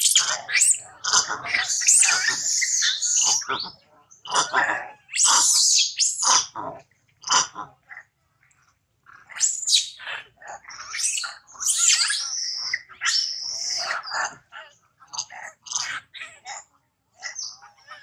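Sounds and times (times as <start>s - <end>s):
monkey screaming: 0.0s - 3.7s, 4.3s - 6.6s, 9.3s - 14.4s, 15.1s - 16.6s, 17.2s - 18.0s.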